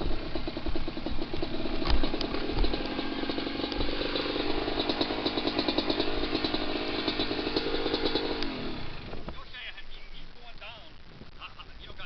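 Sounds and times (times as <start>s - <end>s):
off-road vehicle engine under load: 0.0s - 9.5s.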